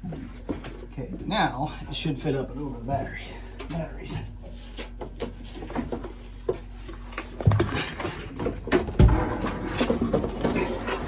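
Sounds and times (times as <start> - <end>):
metal tank knocking and scraping: 7.5 - 11.0
hard bumps of tank: 8.5 - 11.0.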